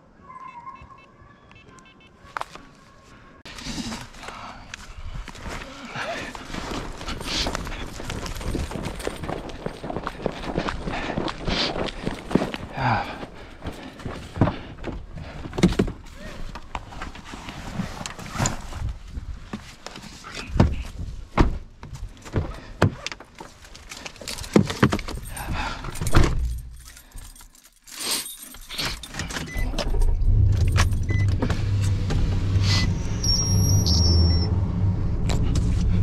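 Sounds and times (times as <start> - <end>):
keys jangling: 7.8 - 9.8, 24.0 - 31.1
high beep: 32.8 - 34.5.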